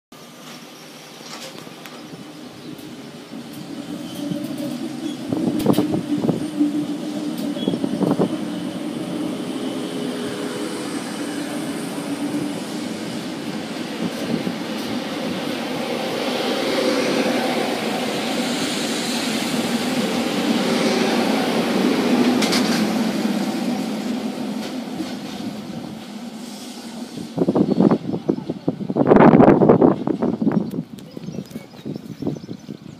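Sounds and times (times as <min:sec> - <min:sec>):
train rushing past: 0:00.2 - 0:31.0
train wheels knocking over rail joints: 0:22.1 - 0:23.2.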